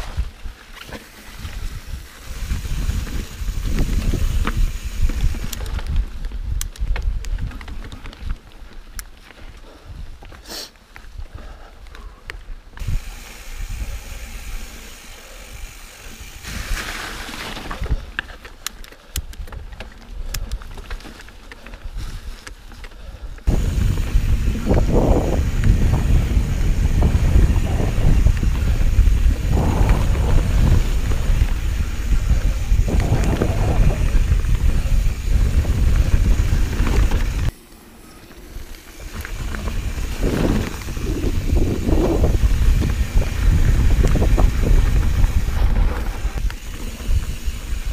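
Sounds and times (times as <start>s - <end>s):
bike clicks and rattles: 0.0s - 47.9s
mountain bike on dirt trail: 0.0s - 47.9s
wind buffeting microphone: 1.3s - 8.4s, 23.4s - 37.6s, 38.6s - 47.9s.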